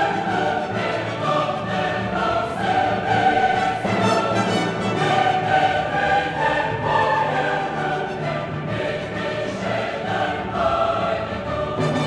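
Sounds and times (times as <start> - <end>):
choir singing held notes: 0.0 - 12.0
orchestra playing: 0.0 - 12.0.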